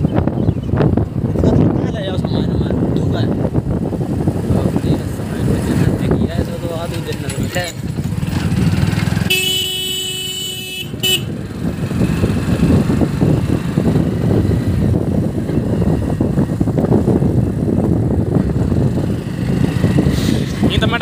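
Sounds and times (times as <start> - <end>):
road noise: 0.0 - 21.0
wind buffeting microphone: 0.0 - 21.0
motorcycle engine running: 2.5 - 21.0
motorcycle horn: 9.2 - 11.4.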